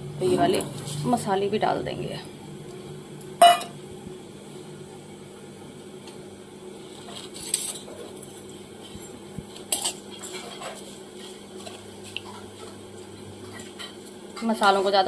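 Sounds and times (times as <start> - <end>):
spices stirred in oil: 6.7 - 15.0
spoon scraping a pan: 7.0 - 12.8.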